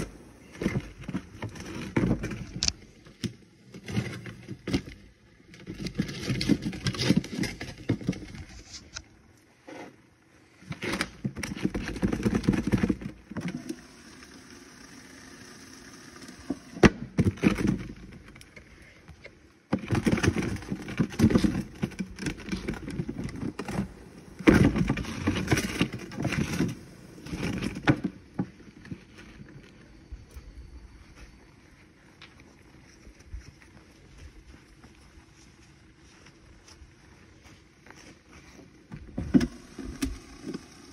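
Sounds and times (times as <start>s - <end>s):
plastic cooler rolling: 0.0s - 2.7s, 3.7s - 8.8s, 10.7s - 13.8s, 19.7s - 29.4s.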